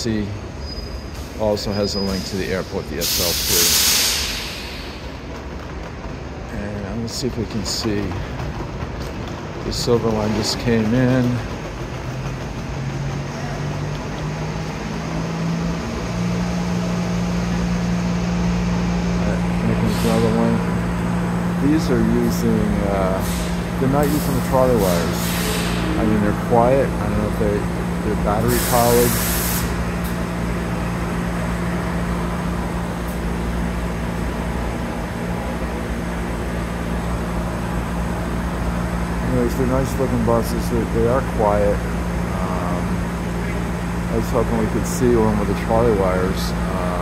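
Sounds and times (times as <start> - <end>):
bus engine hum: 0.0 - 47.0
mechanical drone in tunnel: 0.0 - 47.0
broad rumble: 4.4 - 41.0.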